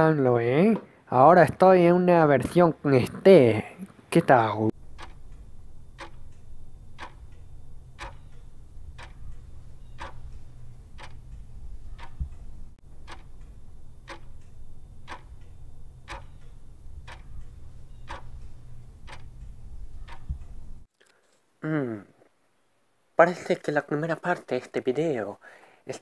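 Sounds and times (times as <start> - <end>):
clock ticking: 4.7 - 20.9
low steady hum: 4.7 - 20.9.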